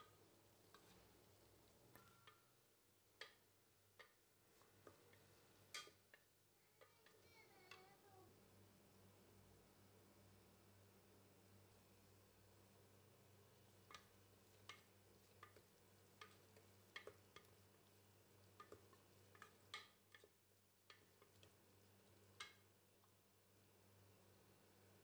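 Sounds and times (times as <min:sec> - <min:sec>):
spatula scraping a pot: 0:13.9 - 0:22.6.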